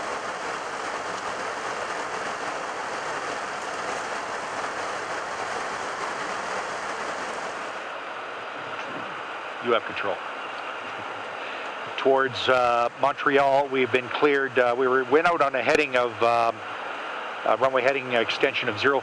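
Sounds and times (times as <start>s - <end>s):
cockpit airflow rushing: 0.0s - 9.7s.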